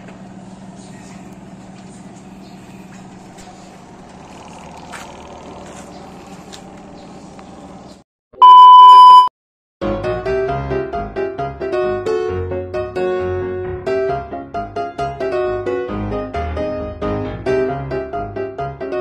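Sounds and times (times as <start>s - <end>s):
shrill test-tone beep: 8.4s - 9.3s.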